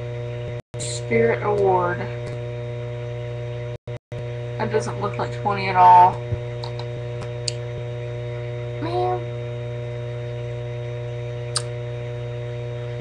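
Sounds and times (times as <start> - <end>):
electrical hum with higher tones: 0.0 - 13.0
sharp click: 11.5 - 11.7.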